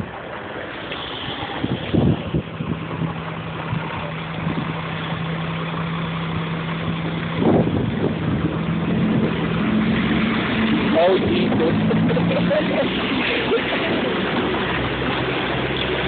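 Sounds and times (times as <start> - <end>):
diesel truck engine idling: 0.0 - 16.0.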